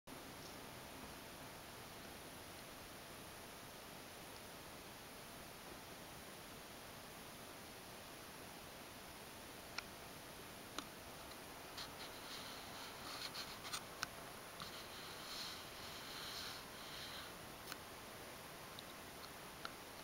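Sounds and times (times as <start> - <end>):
faint steady hiss: 0.1 - 20.0
soft scratchy rustling: 11.2 - 13.9, 14.6 - 17.3.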